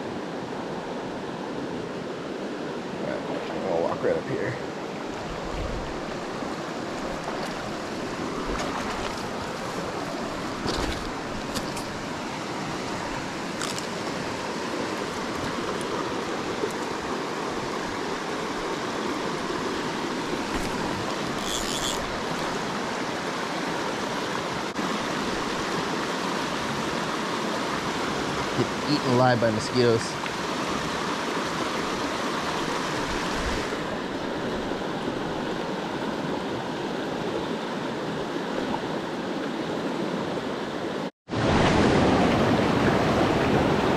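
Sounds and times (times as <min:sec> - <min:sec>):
river rushing over rocks: 0:00.0 - 0:43.9.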